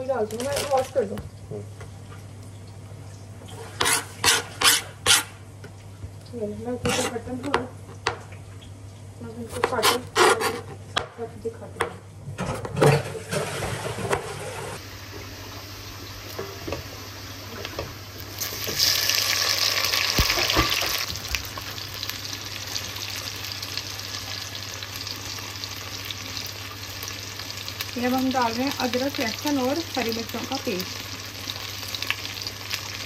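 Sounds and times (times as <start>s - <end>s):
knife cutting on chopping board: 3.8s - 5.3s
vegetables sizzling in oil: 14.5s - 33.0s.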